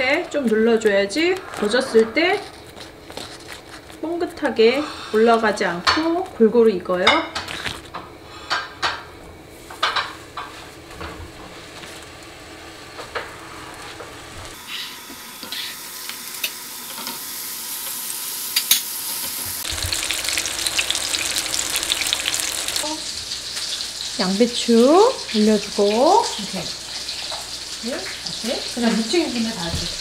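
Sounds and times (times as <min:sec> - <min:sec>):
patties sizzling in frying pan: 0:14.5 - 0:30.0.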